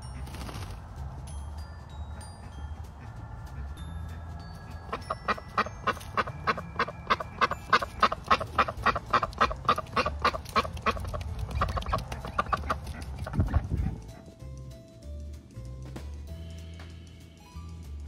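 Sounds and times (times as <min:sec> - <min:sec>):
duck quacking rapidly: 0:04.9 - 0:14.0.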